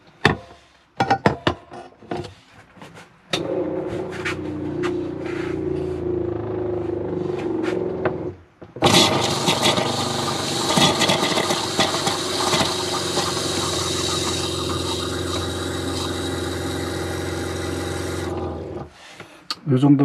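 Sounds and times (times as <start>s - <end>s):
motor hum: 3.4s - 18.9s
tap water running into pot: 8.8s - 18.6s.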